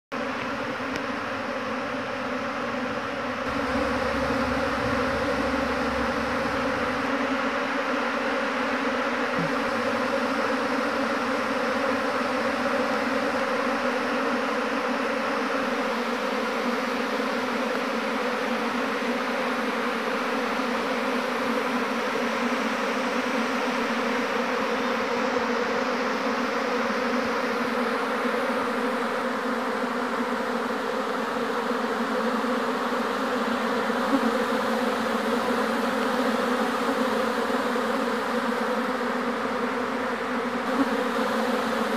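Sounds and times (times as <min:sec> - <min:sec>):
bees buzzing: 0:00.2 - 0:17.9, 0:27.4 - 0:41.9.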